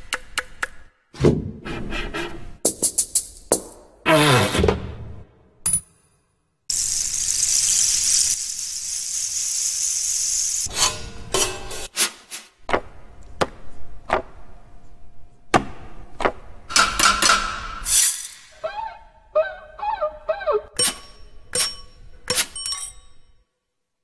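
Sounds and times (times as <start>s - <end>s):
steady hiss: 6.7s - 10.7s
sharp knocks and clanks: 15.5s - 17.8s.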